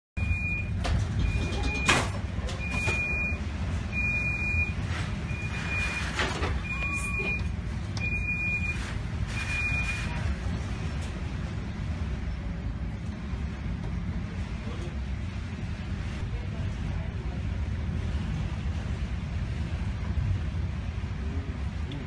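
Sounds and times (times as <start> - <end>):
electronic alarm beeping: 0.2 - 2.0, 2.6 - 8.8, 9.4 - 10.1
storm wind and sea rumble: 0.2 - 22.0.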